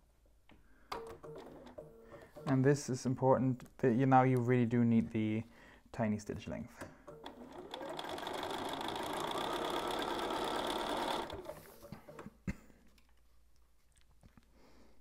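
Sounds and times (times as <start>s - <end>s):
sewing machine stitching: 7.1s - 12.2s.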